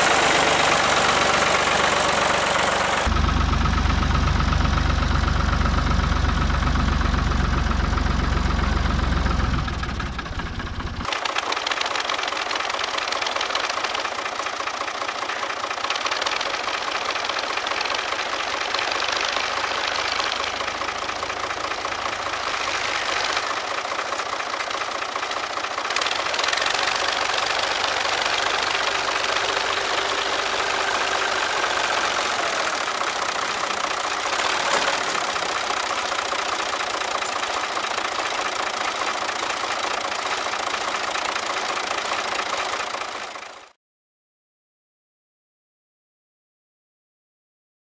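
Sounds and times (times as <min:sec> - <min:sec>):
distant tractor engines running: 0:00.0 - 0:43.8
tractor engine idling: 0:00.0 - 0:43.8.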